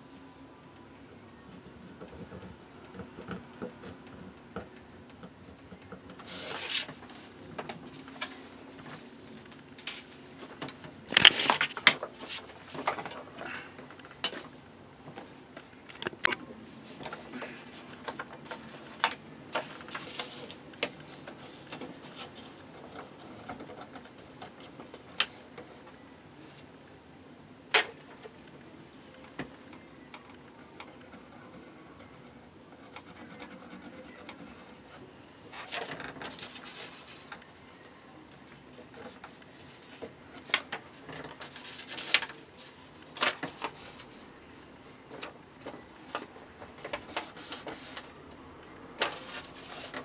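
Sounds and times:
paper rustling and sliding: 0:06.2 - 0:07.3, 0:11.1 - 0:13.3, 0:46.8 - 0:48.2, 0:49.0 - 0:50.0.

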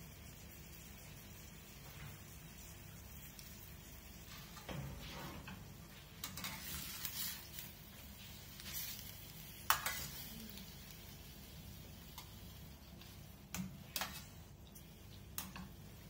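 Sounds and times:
butter sizzling: 0:00.0 - 0:16.0
metal spatula scraping a pan: 0:04.2 - 0:07.7, 0:08.5 - 0:10.3, 0:13.9 - 0:14.4.

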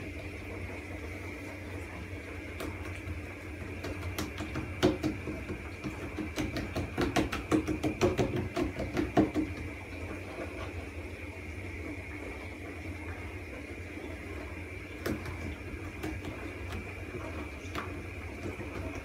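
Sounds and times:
steady background hum: 0:00.0 - 0:19.0
hands patting dough on wood: 0:02.6 - 0:09.8.

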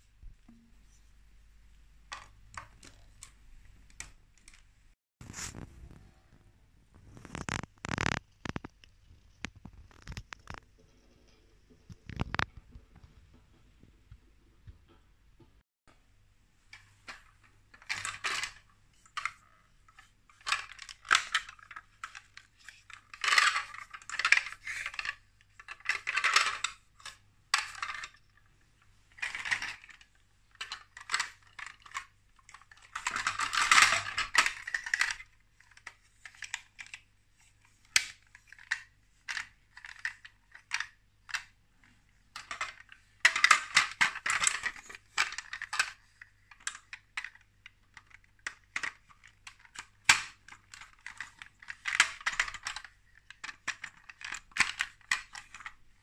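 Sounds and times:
plastic parts clattering: 0:02.1 - 0:04.7, 0:07.2 - 0:08.6, 0:09.5 - 0:10.6, 0:12.0 - 0:12.5, 0:16.7 - 0:56.0
plastic toy parts clicking: 0:16.8 - 0:28.4, 0:29.2 - 0:41.6, 0:42.3 - 0:55.8.

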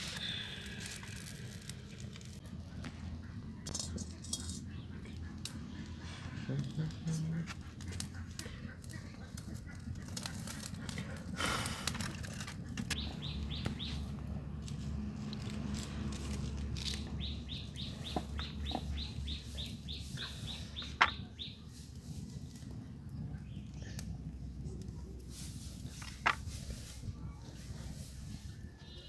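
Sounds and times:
bird chirping: 0:12.9 - 0:14.2, 0:16.9 - 0:21.8.

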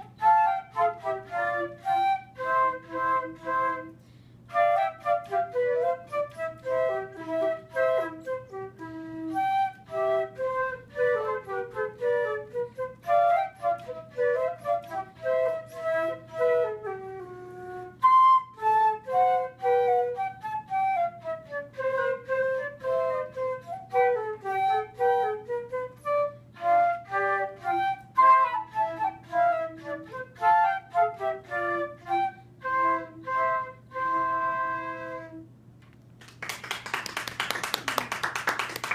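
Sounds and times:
flute duet: 0:00.0 - 0:35.7
applause: 0:36.2 - 0:38.9.

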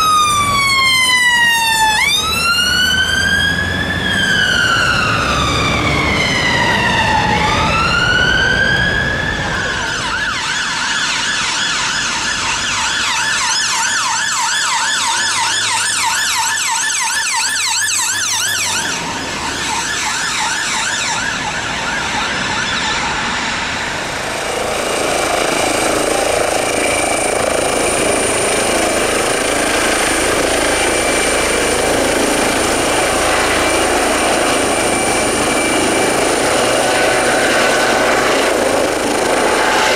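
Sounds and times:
emergency vehicle siren: 0:00.0 - 0:39.9
high whine over rushing noise: 0:17.4 - 0:39.9.

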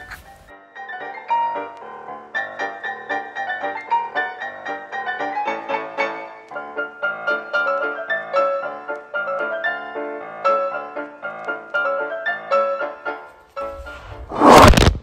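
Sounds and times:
piano music: 0:00.5 - 0:14.3.

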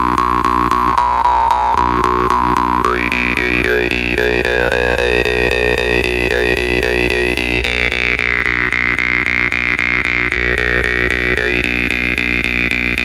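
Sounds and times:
jaw harp plucked over drone: 0:00.0 - 0:13.0.

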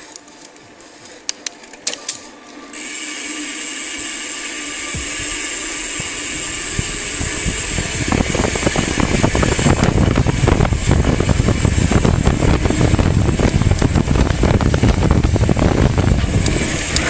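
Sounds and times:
wind and tyre hiss: 0:02.7 - 0:17.0
bike knocking rumble: 0:04.1 - 0:17.0.

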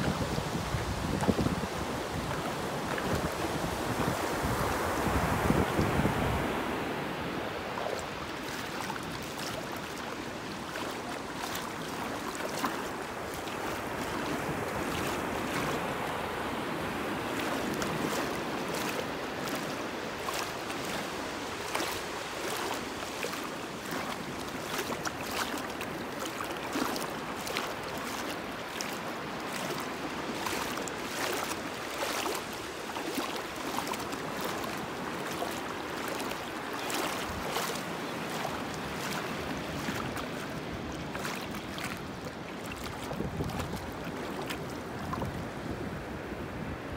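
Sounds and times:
seawater sloshing and lapping: 0:07.6 - 0:45.5
small sharp splashes: 0:07.8 - 0:15.8, 0:17.3 - 0:45.3.

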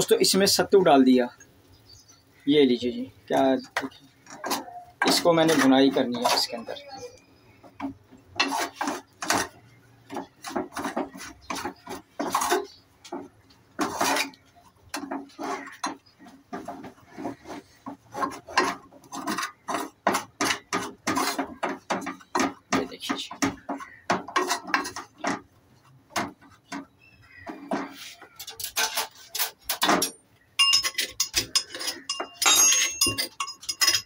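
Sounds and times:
metal spoon scraping flour in pot: 0:03.3 - 0:06.9, 0:07.8 - 0:22.7, 0:23.5 - 0:34.0
spoon clinking against metal pot: 0:30.0 - 0:34.0.

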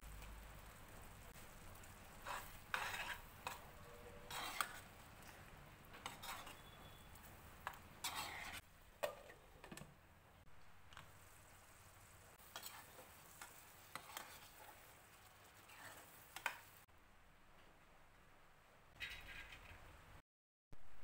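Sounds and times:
ladle scraping and clinking in pan: 0:02.2 - 0:04.9, 0:05.9 - 0:06.9, 0:07.6 - 0:09.4, 0:12.5 - 0:14.9.

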